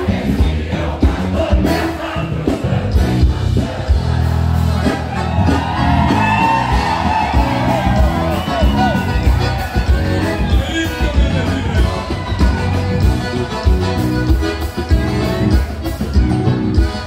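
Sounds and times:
crowd singing along: 0:00.0 - 0:06.2
accordion: 0:00.0 - 0:17.0
live band music: 0:00.0 - 0:17.0.

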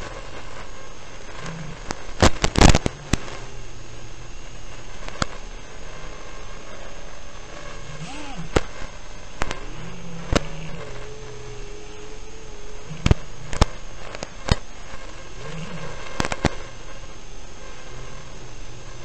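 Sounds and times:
drone motors humming: 0:00.0 - 0:19.0
sharp crackling pops: 0:00.0 - 0:19.0.

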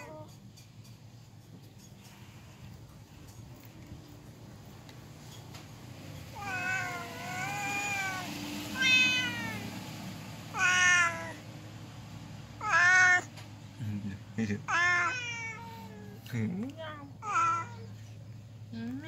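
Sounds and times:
cat meowing: 0:06.3 - 0:09.8, 0:10.5 - 0:11.5, 0:12.6 - 0:13.4, 0:14.6 - 0:16.2, 0:16.9 - 0:18.0.

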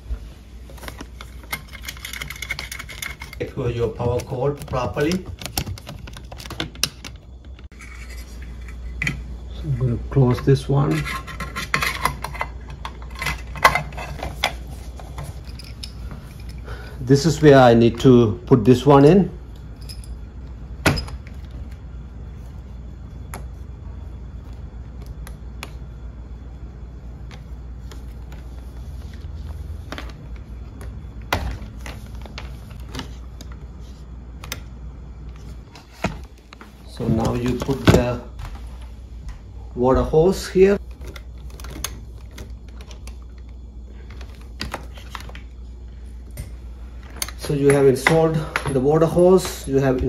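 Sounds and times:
low steady hum: 0:00.0 - 0:50.0
clicks and knocks of handling metal: 0:00.8 - 0:09.2.

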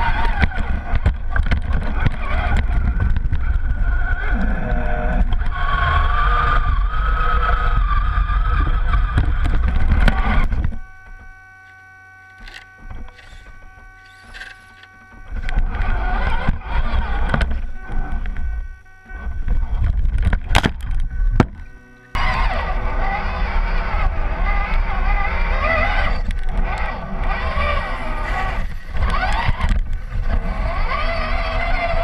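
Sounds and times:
heavy rumble: 0:00.0 - 0:32.0
rc truck motor whining: 0:00.0 - 0:32.0.

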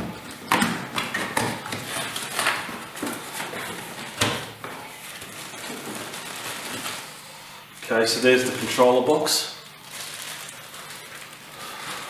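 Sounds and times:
cardboard packaging rustling: 0:01.6 - 0:07.2, 0:09.8 - 0:12.0.

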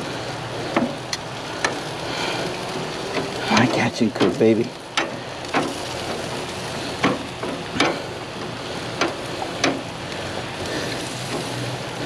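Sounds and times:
meat sizzling on a grill: 0:00.0 - 0:12.0.

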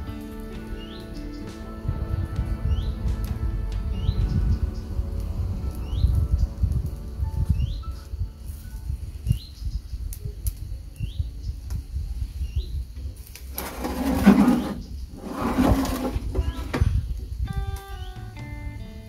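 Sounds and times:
low rumble: 0:01.8 - 0:12.8
bird chirps: 0:17.9 - 0:18.4.

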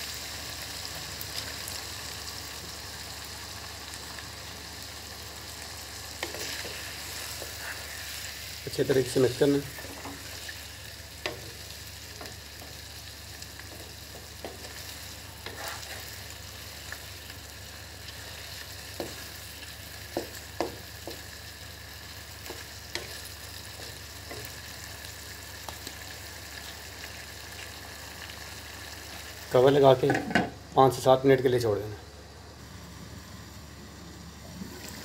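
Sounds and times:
food sizzling in a pan: 0:00.0 - 0:35.0
wooden spatula scraping a pan: 0:06.2 - 0:08.2, 0:13.8 - 0:16.2.

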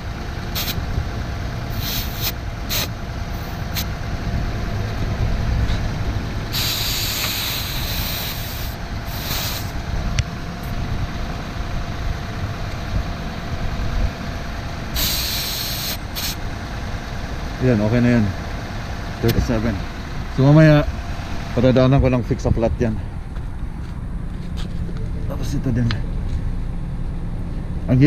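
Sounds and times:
air hissing out of a tyre: 0:00.5 - 0:00.8, 0:01.7 - 0:03.9, 0:06.5 - 0:09.8, 0:14.9 - 0:16.5
low rumble: 0:02.4 - 0:06.7, 0:07.9 - 0:15.0.

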